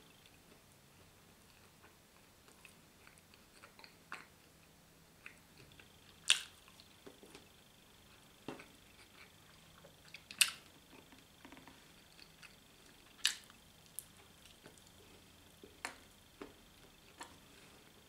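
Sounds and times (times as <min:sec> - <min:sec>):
person chewing a sandwich: 0:01.5 - 0:04.6, 0:05.2 - 0:17.9.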